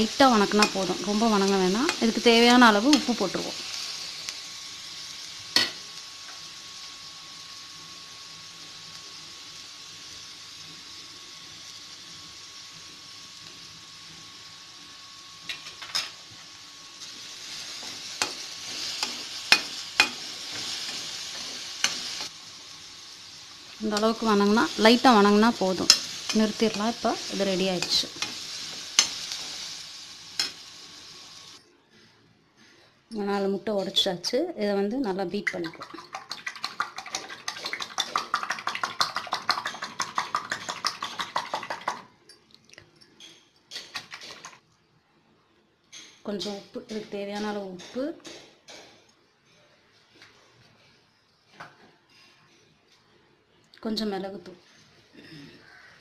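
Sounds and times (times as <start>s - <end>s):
vegetables sizzling in oil: 0.0s - 31.6s, 33.2s - 42.2s, 46.2s - 48.2s
whisk beating eggs in bowl: 35.7s - 42.0s.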